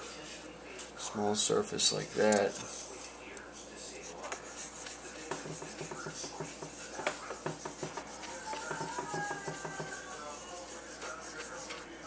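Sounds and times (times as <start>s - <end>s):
scratchy rubbing strokes on metal: 1.8s - 12.0s.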